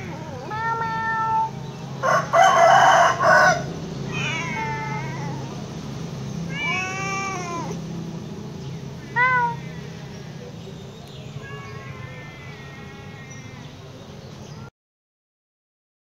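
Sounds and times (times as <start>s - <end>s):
cat meowing: 0.0s - 1.6s, 3.3s - 5.7s, 6.4s - 7.8s, 9.0s - 10.0s, 11.3s - 13.7s.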